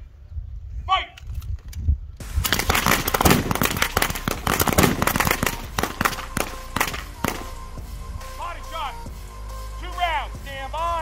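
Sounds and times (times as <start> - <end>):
rifle gunfire: 2.2 - 7.6
background music: 2.2 - 11.0.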